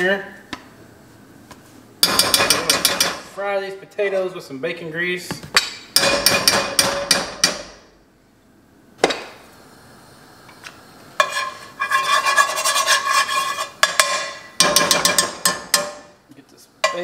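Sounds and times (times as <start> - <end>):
spoon scraping iron pot: 11.2 - 15.6.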